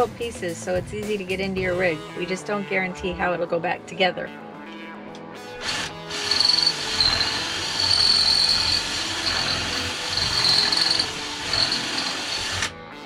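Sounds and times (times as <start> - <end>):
angle grinder cutting metal: 5.6 - 12.8.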